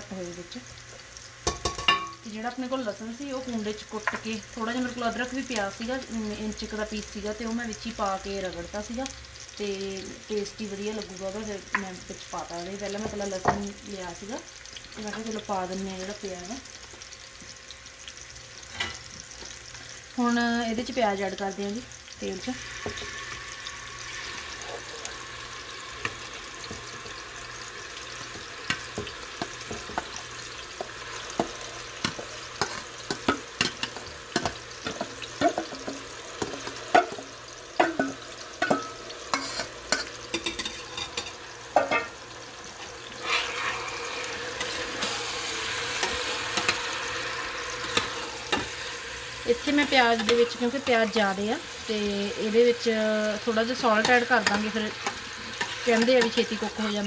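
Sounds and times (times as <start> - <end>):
onions sizzling in hot oil: 0.0 - 57.0
metal spoon scraping a pot: 38.6 - 42.1, 43.2 - 45.2.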